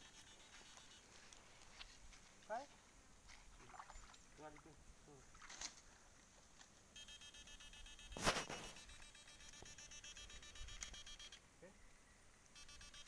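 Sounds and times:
electronic pulsing buzz: 0:07.0 - 0:11.4, 0:12.6 - 0:13.0.

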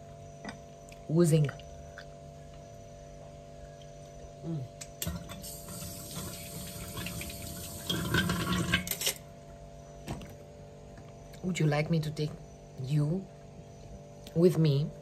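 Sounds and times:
kitchen tap turning on: 0:05.0 - 0:08.9
water running into metal sink: 0:05.3 - 0:09.0.

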